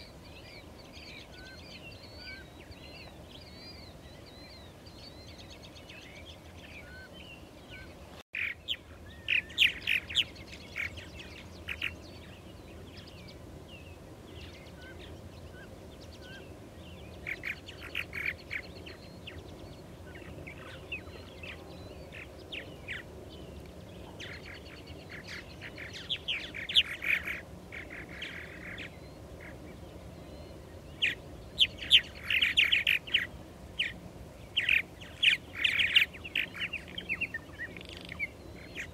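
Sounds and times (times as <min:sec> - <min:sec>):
birds chirping and chattering: 0:00.0 - 0:38.9.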